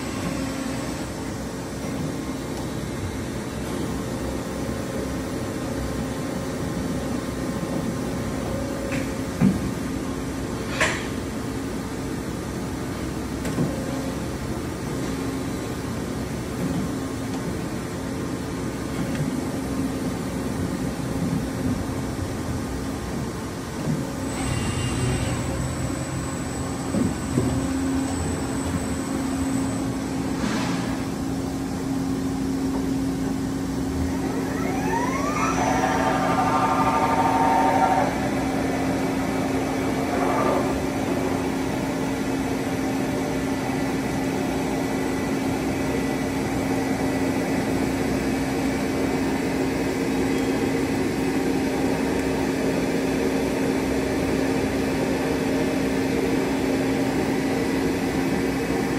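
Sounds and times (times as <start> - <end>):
machine humming: 31.3 - 44.2
rising machine whine: 33.8 - 43.0.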